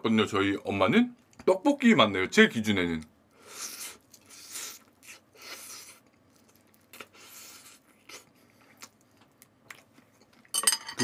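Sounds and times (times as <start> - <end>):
crunchy chewing: 3.4 - 10.5.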